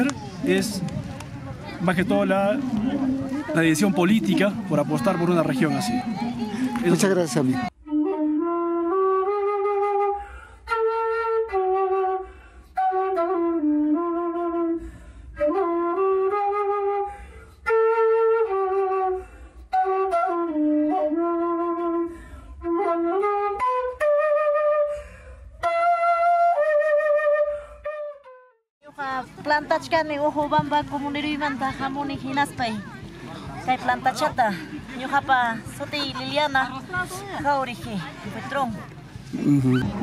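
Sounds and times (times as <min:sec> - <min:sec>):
flute melody: 0:01.8 - 0:28.6.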